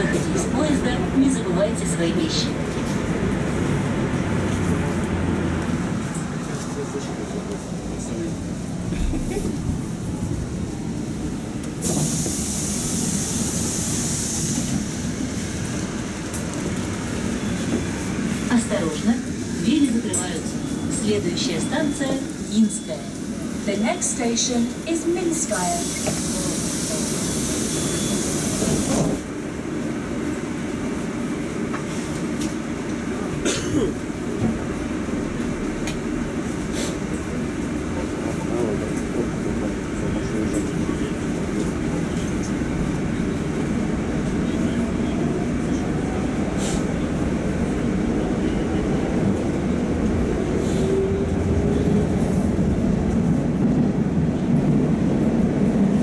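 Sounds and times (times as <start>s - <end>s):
train steady low rumble: 0.0s - 56.0s
sharp hiss of air: 11.8s - 15.0s.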